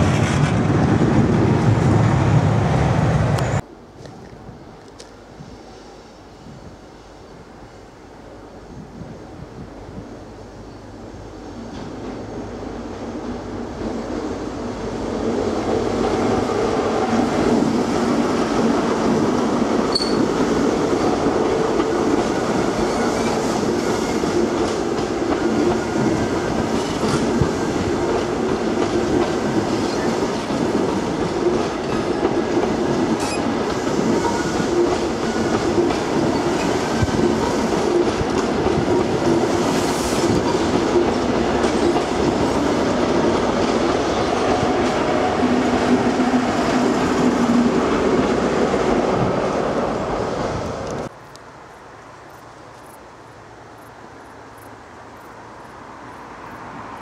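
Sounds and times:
train wheels rumbling over bridge: 0.0s - 3.6s, 4.6s - 51.1s
sharp clicks of train wheels: 16.0s - 48.4s.

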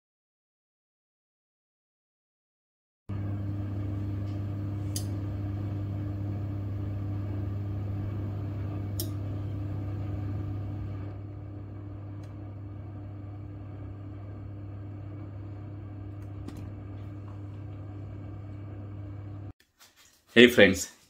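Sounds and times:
steady low hum: 3.1s - 19.5s.

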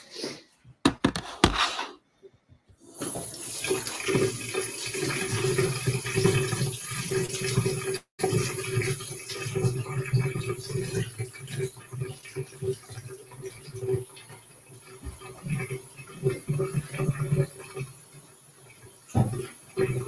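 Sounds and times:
knocks: 0.8s - 1.6s
tap running into sink: 3.0s - 4.6s, 19.1s - 19.6s.

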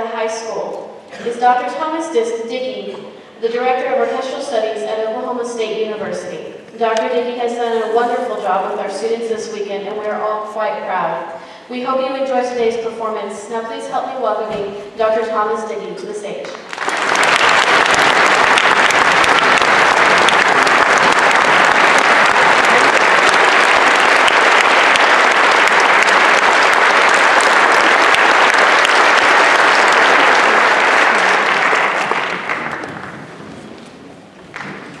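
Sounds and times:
audience applauding: 16.6s - 33.9s, 34.5s - 35.0s.

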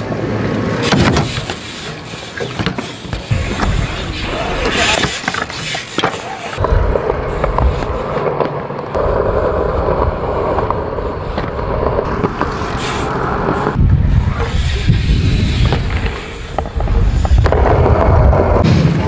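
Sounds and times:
bike tyres rolling on concrete: 0.0s - 19.0s
wind rumble on microphone: 13.6s - 19.0s.

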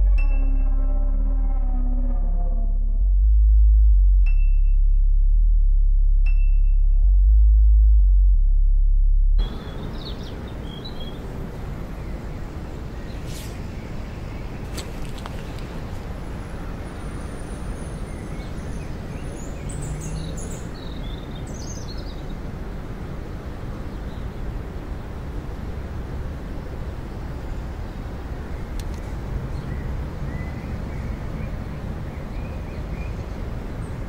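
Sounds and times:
birds chirping: 9.4s - 15.8s.

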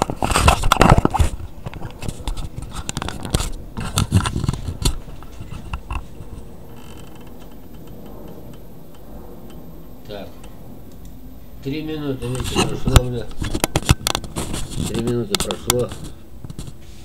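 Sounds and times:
scraping rustling and clicking: 0.0s - 8.7s, 12.2s - 17.0s
steady hum: 0.0s - 17.0s.

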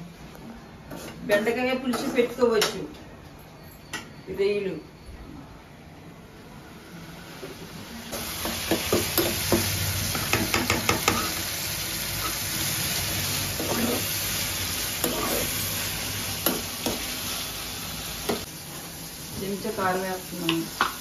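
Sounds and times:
tomatoes sizzling in hot oil: 7.5s - 21.0s.

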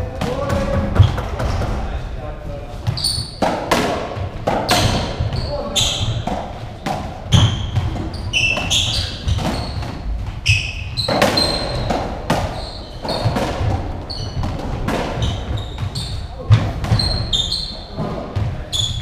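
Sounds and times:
shoes squeaking on floor: 0.6s - 1.6s, 2.7s - 19.0s
ball smacking off walls and floor: 2.9s - 5.4s, 11.0s - 17.2s
ball struck by rackets: 3.4s - 5.3s, 11.0s - 15.9s.

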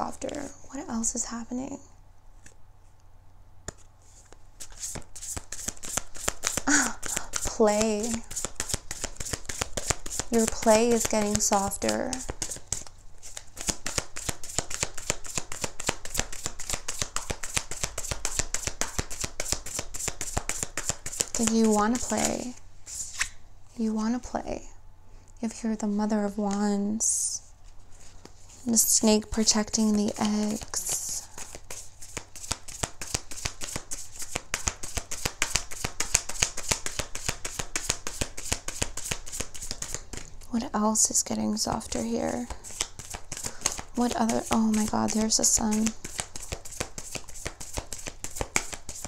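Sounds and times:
cards shuffling snaps: 3.6s - 22.2s, 23.0s - 23.4s, 30.4s - 40.4s, 41.8s - 49.0s.

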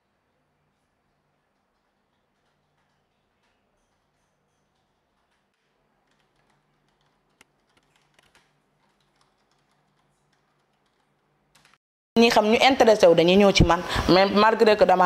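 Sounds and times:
faint keyboard typing: 0.7s - 11.8s.

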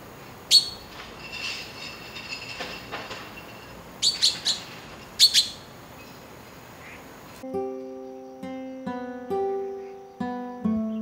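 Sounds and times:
faint bird chirping: 0.0s - 2.6s, 3.3s - 11.0s
magpie harsh calls: 0.5s - 0.8s, 4.0s - 6.2s.

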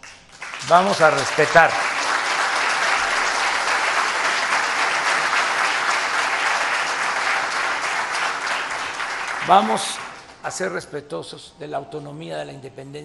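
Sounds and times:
audience applauding: 0.0s - 10.4s.

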